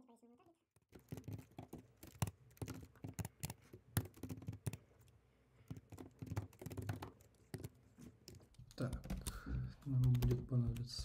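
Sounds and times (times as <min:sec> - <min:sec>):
keyboard typing clicks: 0:05.7 - 0:11.0.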